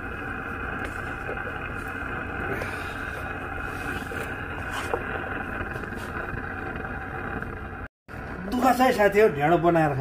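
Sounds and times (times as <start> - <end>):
gas burner hiss: 0.0 - 7.8.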